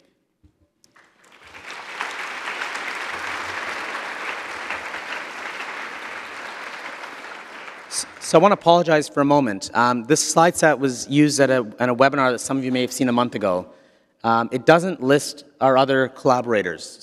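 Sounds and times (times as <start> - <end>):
audience applauding: 0.9 - 8.6.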